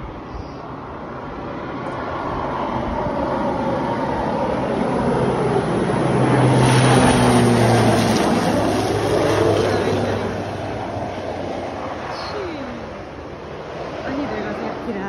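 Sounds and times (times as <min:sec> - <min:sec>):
small aircraft engine: 0:00.0 - 0:15.0.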